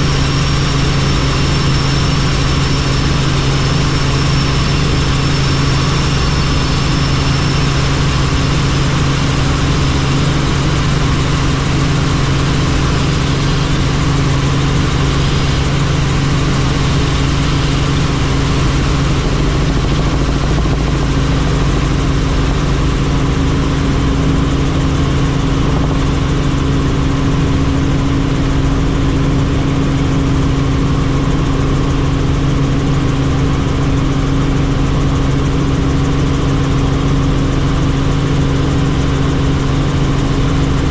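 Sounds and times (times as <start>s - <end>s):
helicopter drone: 0.0s - 40.9s.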